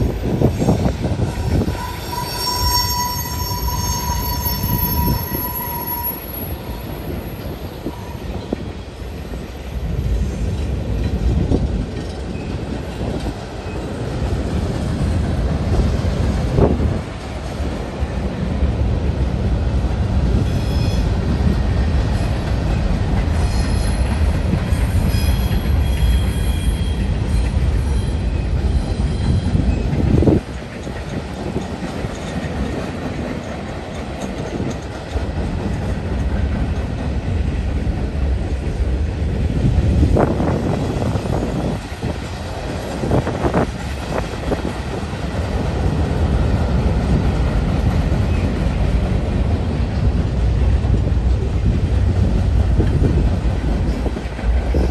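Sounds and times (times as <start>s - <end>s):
train wheels rumbling on rail: 0.0s - 54.9s
high-pitched wheel squeal: 1.3s - 8.3s.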